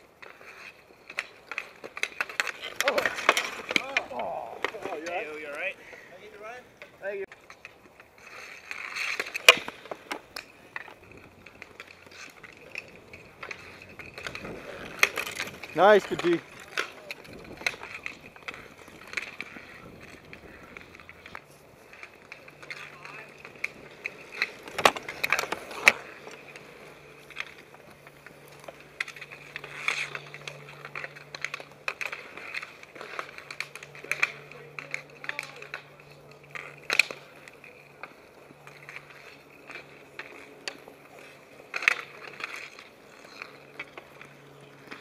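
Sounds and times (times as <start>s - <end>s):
hockey sticks clacking on asphalt: 0.0s - 45.0s.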